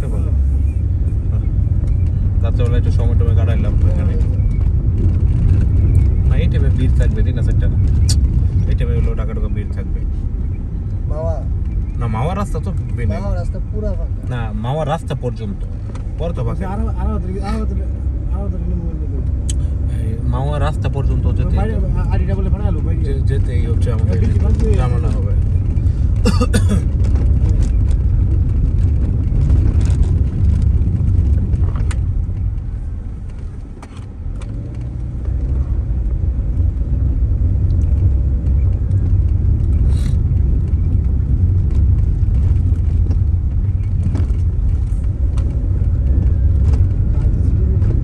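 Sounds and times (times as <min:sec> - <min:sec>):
tyre and engine rumble: 0:00.0 - 0:48.0
small knocks and rattles: 0:37.8 - 0:48.0.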